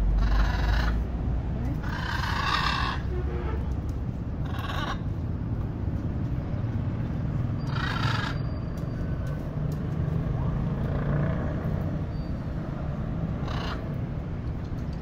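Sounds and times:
macaws squawking: 0:00.1 - 0:01.1, 0:01.8 - 0:03.1, 0:04.4 - 0:05.2, 0:07.7 - 0:08.5, 0:13.4 - 0:14.0.

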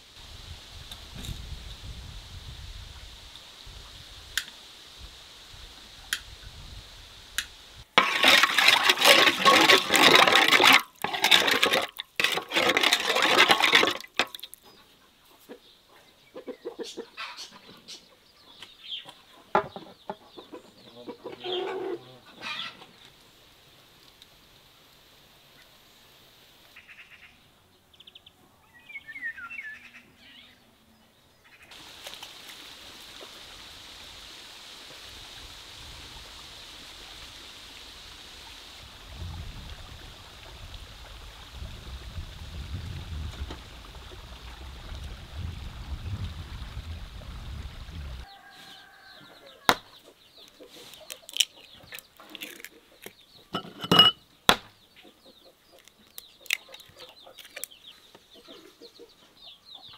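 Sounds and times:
outdoor hiss: 0:00.0 - 0:12.6, 0:22.4 - 0:27.4, 0:31.2 - 0:51.7
glass and metal bowls clinking: 0:08.0 - 0:14.3, 0:53.5 - 0:54.2.

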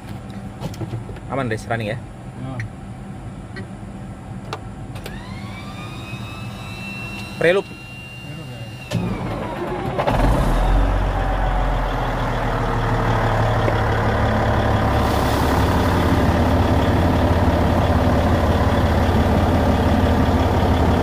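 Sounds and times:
diesel engine idling: 0:02.9 - 0:21.0.

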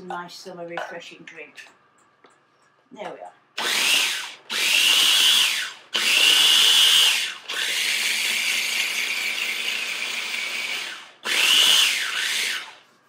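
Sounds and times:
food processor motor whining: 0:03.6 - 0:12.9.

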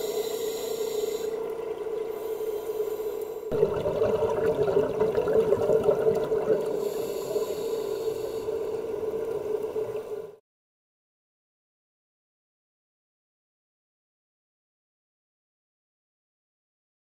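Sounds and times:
underwater hum: 0:00.0 - 0:10.4
rushing water and bubbles: 0:01.0 - 0:10.4.

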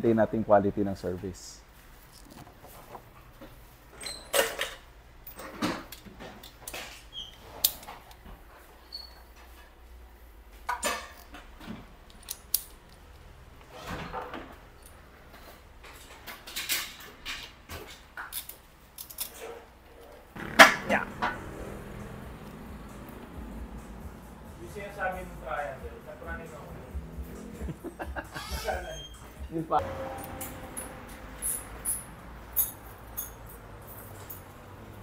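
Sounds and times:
metal hand tools clinking: 0:30.1 - 0:34.6.

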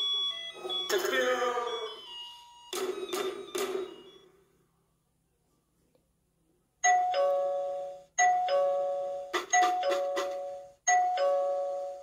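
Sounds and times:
doorbell chime ding-dong: 0:00.0 - 0:04.4, 0:06.8 - 0:12.0.

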